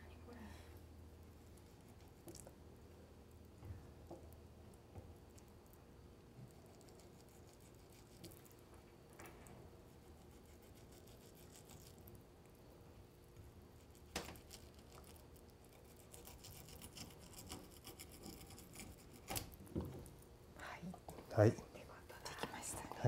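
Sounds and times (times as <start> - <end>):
knife scraping fish fillet: 15.8 - 19.4.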